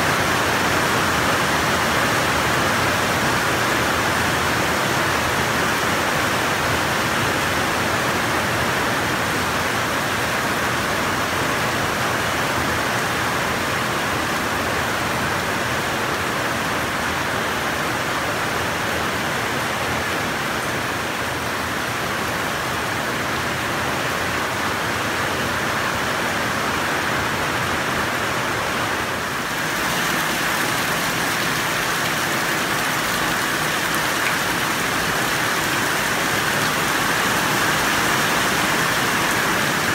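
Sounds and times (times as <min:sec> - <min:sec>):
heavy rain falling: 0:00.0 - 0:39.9
rain splashing into buckets: 0:00.0 - 0:39.9
water streaming off roof: 0:00.0 - 0:39.9.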